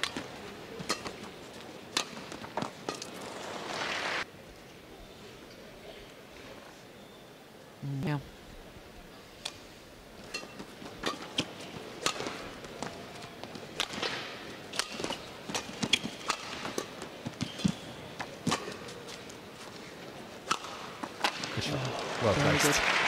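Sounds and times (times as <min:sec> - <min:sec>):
rackets striking shuttlecock: 0:00.0 - 0:03.6, 0:10.3 - 0:13.0, 0:13.7 - 0:19.0, 0:20.4 - 0:21.6.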